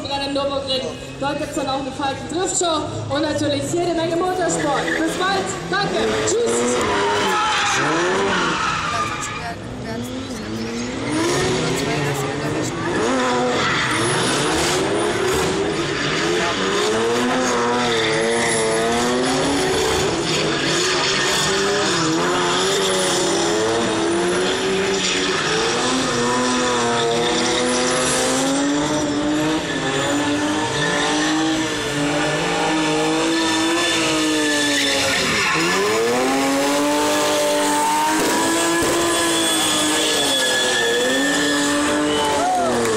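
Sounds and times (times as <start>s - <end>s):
car engines revving high: 0.0s - 42.9s
tyres squealing: 6.2s - 9.6s, 33.7s - 42.9s.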